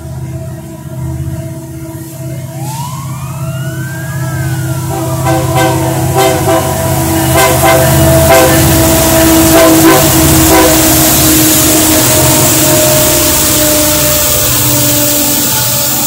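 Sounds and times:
diesel engine noise: 0.0 - 16.0
train air horn chord: 4.8 - 16.0.

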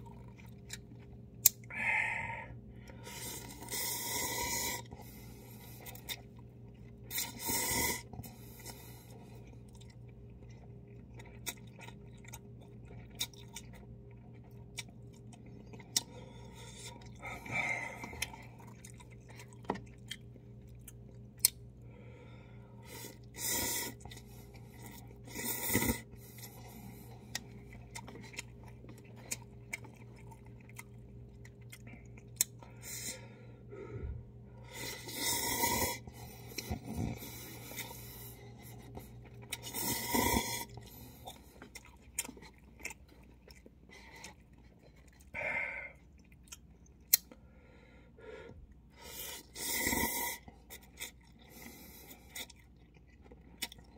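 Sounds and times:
chewing noodles: 0.0 - 1.7, 2.8 - 21.8, 22.8 - 33.2, 34.6 - 47.4, 48.7 - 53.9
steady low hum: 0.0 - 53.9.

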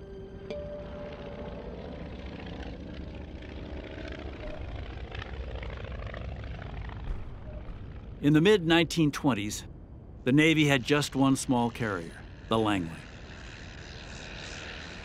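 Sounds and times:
held music chord: 0.0 - 2.5
propeller plane engine drone: 0.0 - 15.0.

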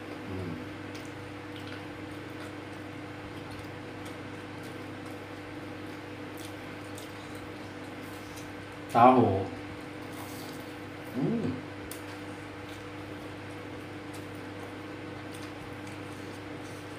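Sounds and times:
chewing: 0.8 - 8.9, 11.8 - 16.9.

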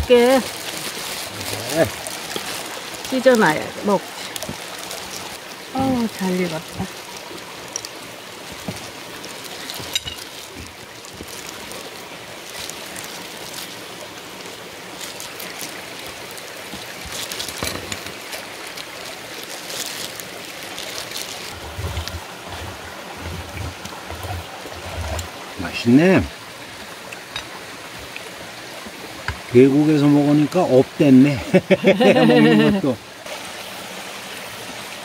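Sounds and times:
stream flowing: 0.0 - 35.0.

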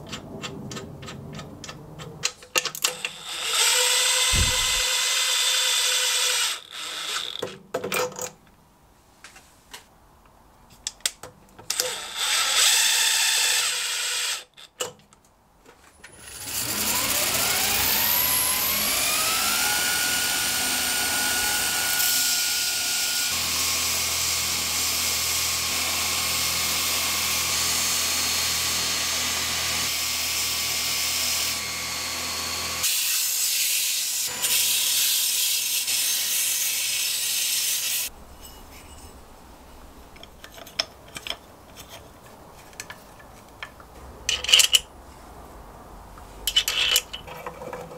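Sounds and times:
belt grinder motor whine: 3.0 - 7.4, 16.2 - 29.9
cordless driver running: 3.3 - 5.0.

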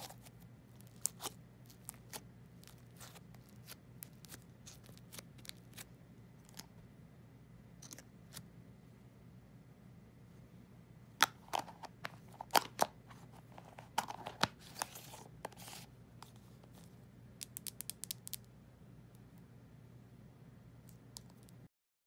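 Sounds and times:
scratchy slime stretch: 0.0 - 6.6.

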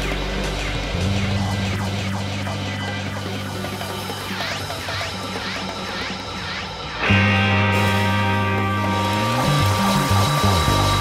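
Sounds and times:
low held music chord: 7.1 - 11.0.

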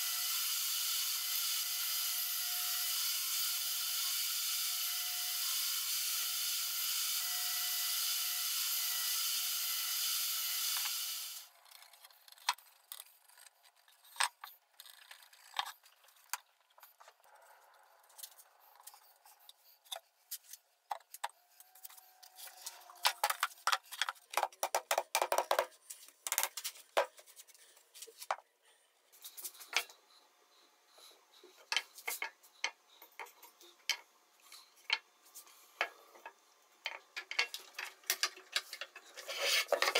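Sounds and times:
table saw cutting wood: 0.0 - 11.5
hand blade scraping wood: 38.6 - 39.9.

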